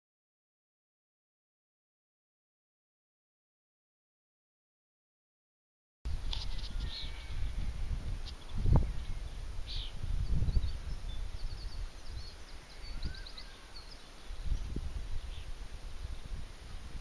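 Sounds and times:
small birds chirping: 0:06.1 - 0:17.0
wind gusting on microphone: 0:06.1 - 0:17.0.

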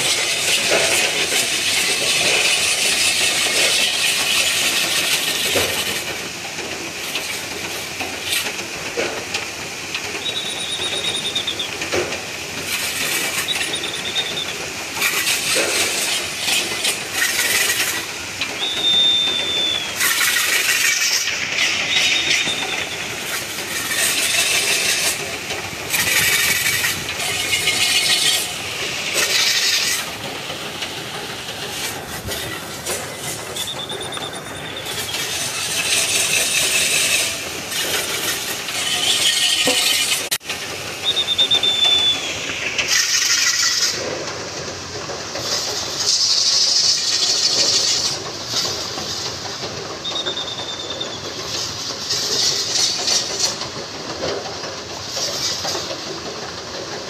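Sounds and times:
short high squeaks: 0:10.2 - 0:11.7, 0:13.0 - 0:18.0, 0:18.6 - 0:25.2, 0:26.0 - 0:30.1, 0:31.8 - 0:40.4
rig scraping on dirt track: 0:10.2 - 0:44.2.

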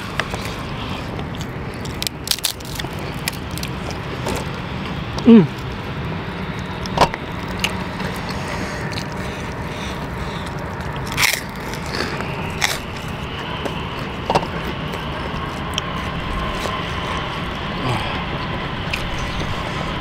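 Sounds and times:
sharp clicks and crunches: 0:00.0 - 0:05.8, 0:06.4 - 0:17.7
chewing and biting: 0:00.0 - 0:20.0.

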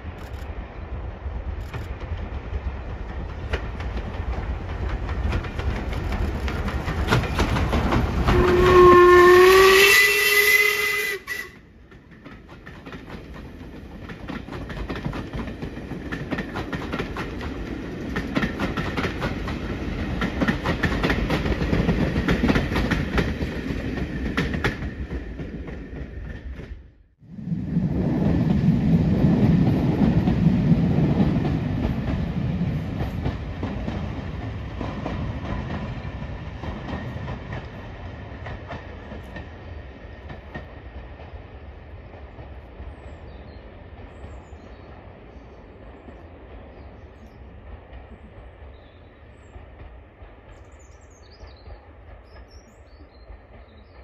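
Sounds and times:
diesel train engines rumbling: 0:00.0 - 0:54.0
train coaches clattering over rail joints: 0:02.9 - 0:08.8.

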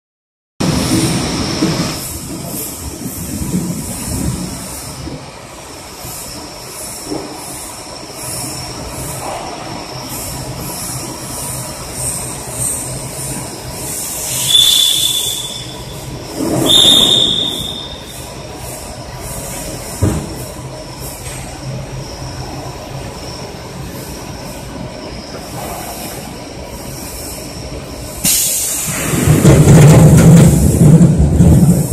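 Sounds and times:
hiss rush: 0:00.6 - 0:20.0, 0:25.4 - 0:31.9
shrill squeals: 0:14.3 - 0:16.0, 0:16.6 - 0:18.2.

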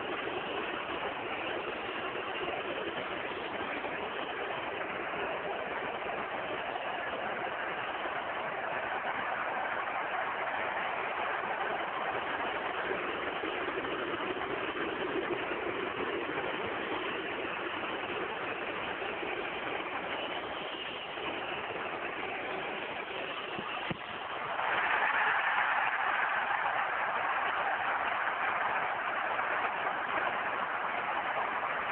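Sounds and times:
stadium crowd noise: 0:00.0 - 0:31.9.

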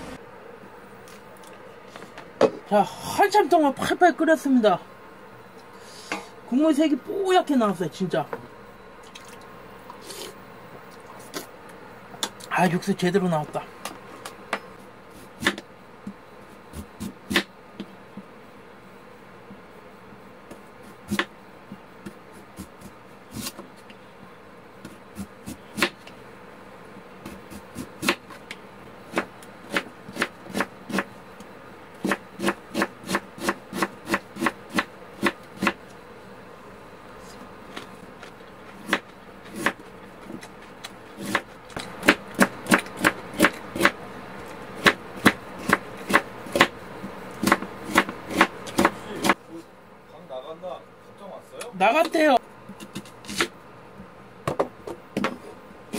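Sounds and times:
knife chopping on wooden board: 0:15.4 - 0:15.6, 0:16.7 - 0:17.5, 0:20.5 - 0:21.3, 0:24.8 - 0:26.1, 0:27.2 - 0:28.4, 0:29.1 - 0:31.1, 0:32.0 - 0:35.8, 0:38.7 - 0:44.0, 0:44.8 - 0:49.4.

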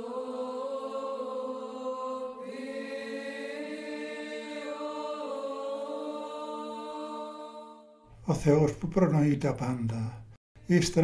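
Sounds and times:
voices chanting: 0:00.0 - 0:08.0.

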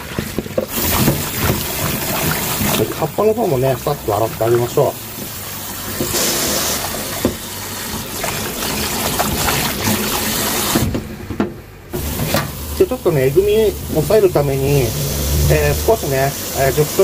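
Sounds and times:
tap water running into sink: 0:00.0 - 0:11.0, 0:11.9 - 0:17.0.

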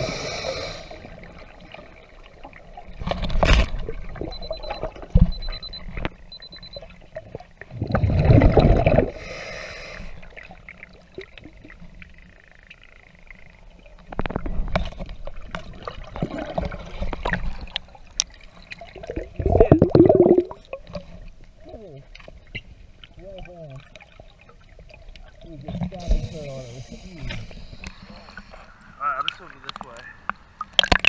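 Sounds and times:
water sloshing and splashing: 0:01.0 - 0:09.2, 0:14.0 - 0:26.5.

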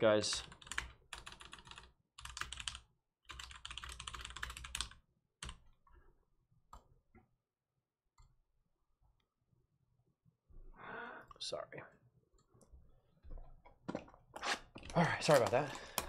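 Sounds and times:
typing on computer keyboard: 0:00.4 - 0:05.7.

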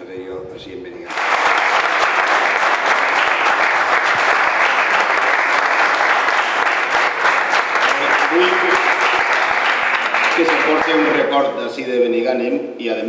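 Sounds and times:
crowd applauding: 0:01.1 - 0:11.5.

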